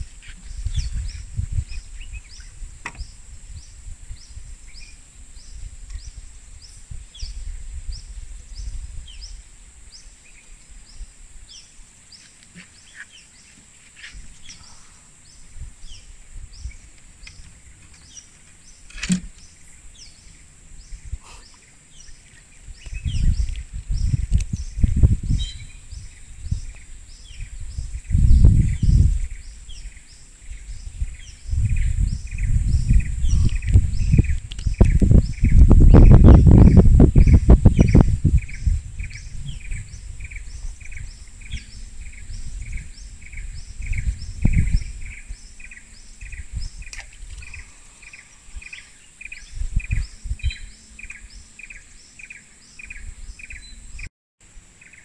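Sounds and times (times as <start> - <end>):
microphone rumble: 0.0 - 9.9, 19.1 - 51.7
insect drone: 0.0 - 55.0.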